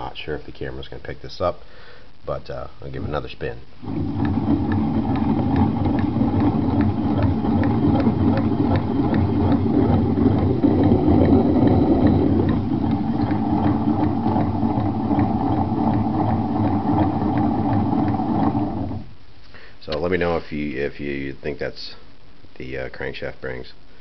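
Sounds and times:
scooter engine grinding rattle: 3.8s - 19.1s.

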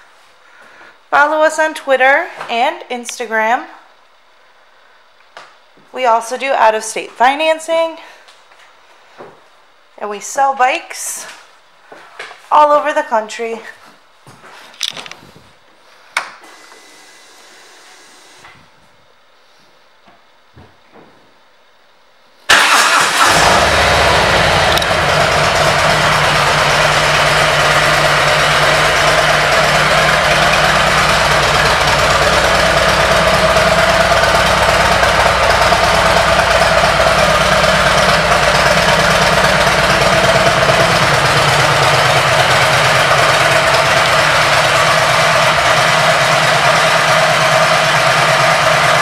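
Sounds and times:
motorcycle engine starting and idling: 22.5s - 49.0s.

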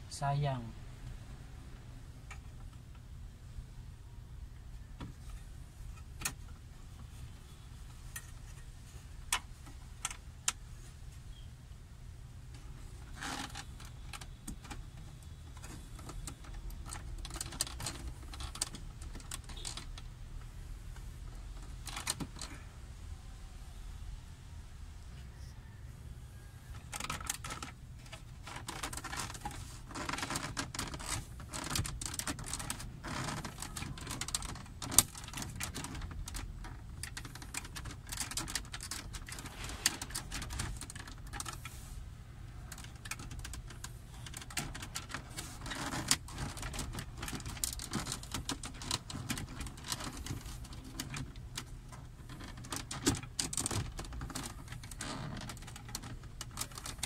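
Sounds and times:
plastic panel clicking and creaking: 12.5s - 20.1s, 21.0s - 22.6s, 26.7s - 41.8s, 42.6s - 57.0s.

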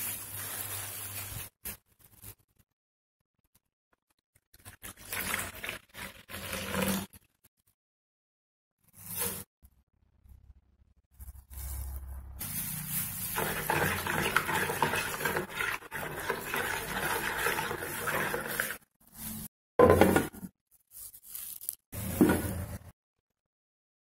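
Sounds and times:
spoon stirring in plastic bowl: 13.3s - 18.8s.

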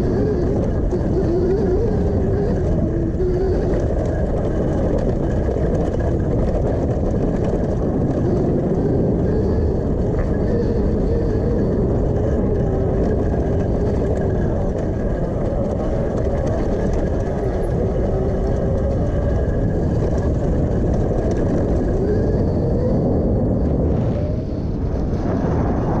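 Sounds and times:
electric motor whining: 0.0s - 25.1s
heavy low rumble: 0.0s - 26.0s.

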